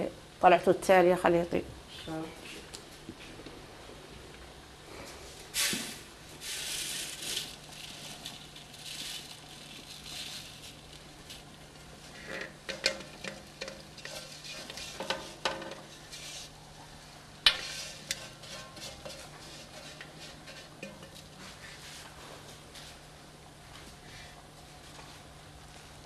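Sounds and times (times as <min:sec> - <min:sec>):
grains pouring soft hiss: 0:04.9 - 0:12.3, 0:17.5 - 0:22.0.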